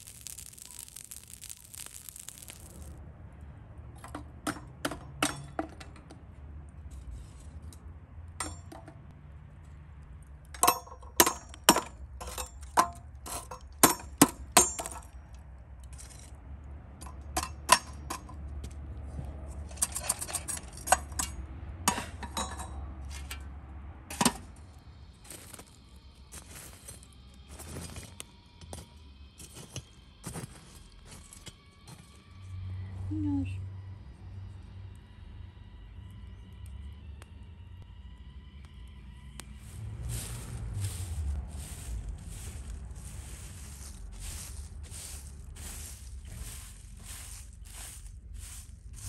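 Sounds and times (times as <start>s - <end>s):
metal tongs clinking on metal: 10.5s - 11.6s, 19.7s - 22.8s.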